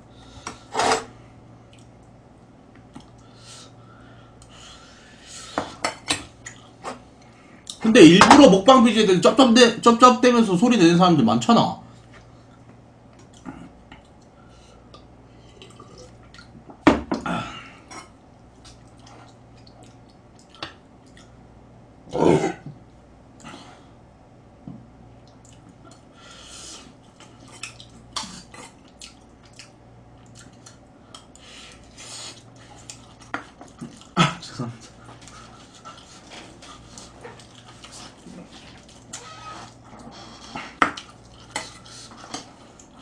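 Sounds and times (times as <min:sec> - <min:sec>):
chewing and lip-smacking: 0:13.2 - 0:16.6, 0:18.5 - 0:21.4, 0:25.2 - 0:26.1, 0:27.0 - 0:34.2, 0:34.8 - 0:43.0.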